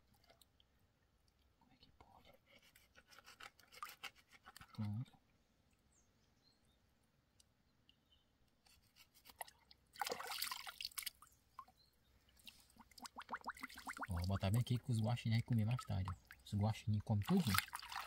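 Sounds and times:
clicks and scrapes of fish cleaning: 0:02.5 - 0:04.8, 0:08.6 - 0:09.5
splashing water: 0:09.4 - 0:11.3, 0:12.3 - 0:18.0.

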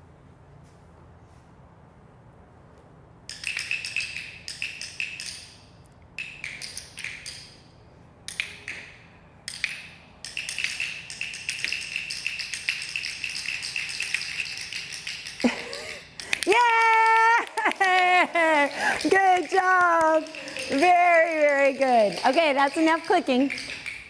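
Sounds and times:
training clickers clicking: 0:03.3 - 0:17.2, 0:17.8 - 0:24.0.

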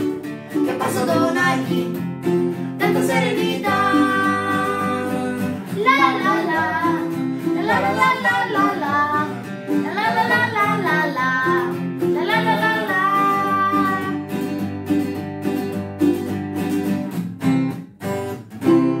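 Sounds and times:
strummed acoustic guitar: 0:00.0 - 0:19.0
ukulele strumming: 0:00.0 - 0:19.0
child singing: 0:00.7 - 0:02.0, 0:02.8 - 0:14.2.

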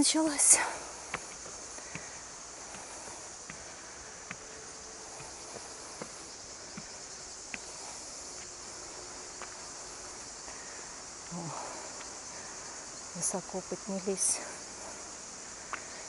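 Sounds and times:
insects chirring: 0:00.0 - 0:16.0
footsteps climbing stairs: 0:00.5 - 0:08.6.

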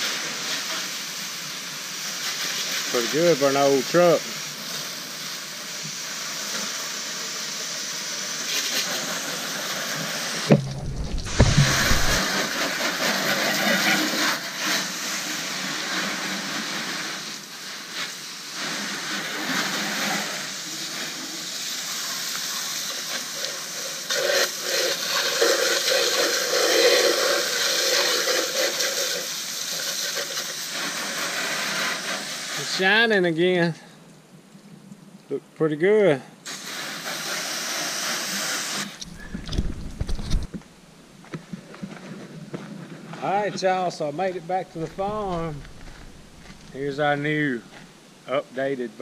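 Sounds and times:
hose nozzle spraying water: 0:00.0 - 0:33.0, 0:36.5 - 0:40.6, 0:44.5 - 0:47.8
low thumps: 0:10.5 - 0:12.3, 0:44.7 - 0:46.8.

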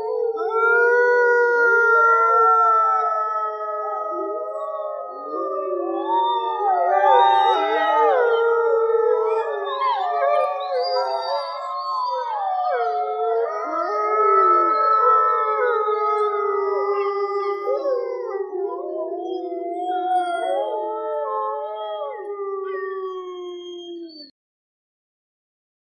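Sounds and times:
wolves howling in chorus: 0:00.0 - 0:24.3.

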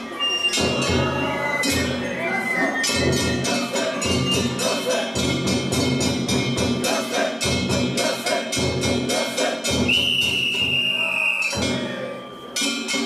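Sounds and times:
drum beats: 0:00.0 - 0:13.0
long whistle blast: 0:09.9 - 0:11.6.

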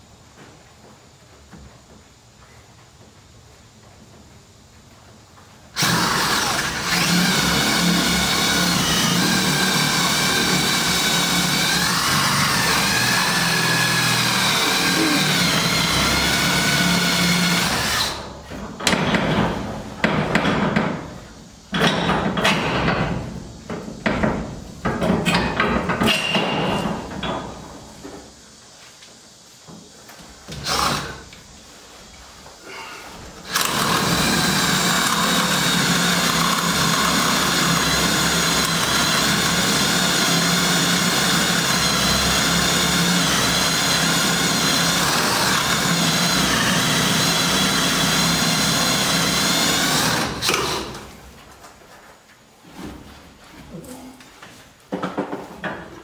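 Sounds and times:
cordless drill boring into wood: 0:05.8 - 0:18.3, 0:30.6 - 0:31.2, 0:33.4 - 0:51.0.

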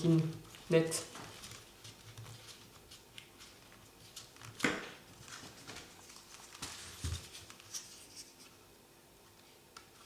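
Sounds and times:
paper rustling and crackling: 0:00.0 - 0:08.5.

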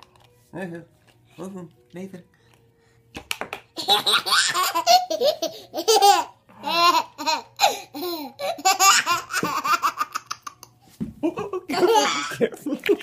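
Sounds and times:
baby laughing: 0:03.8 - 0:12.6.

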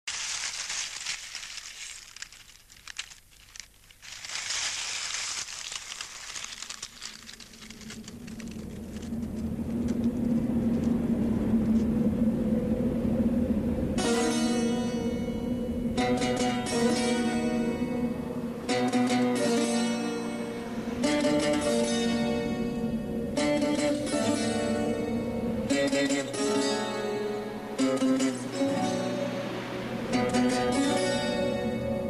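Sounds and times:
crackling hissing noise with clicks: 0:00.0 - 0:11.9
low steady hum: 0:00.1 - 0:32.0
plucked strings: 0:16.0 - 0:32.0.

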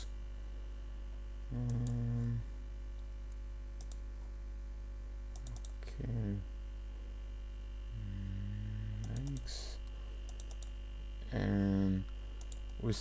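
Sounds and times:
low electrical hum: 0:00.0 - 0:13.0
computer mouse clicks: 0:01.6 - 0:02.0, 0:03.3 - 0:04.0, 0:05.3 - 0:05.8, 0:09.0 - 0:10.8, 0:12.4 - 0:12.8.

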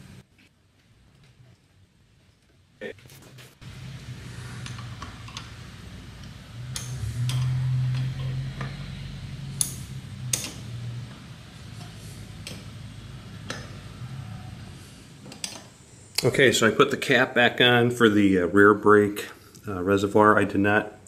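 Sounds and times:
low steady hum: 0:00.0 - 0:21.0
ratchet wrench clicking: 0:06.2 - 0:08.8.

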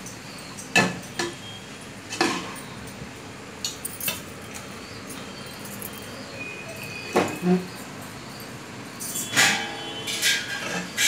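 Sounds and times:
metal spatula scraping metal pot: 0:09.3 - 0:11.0.

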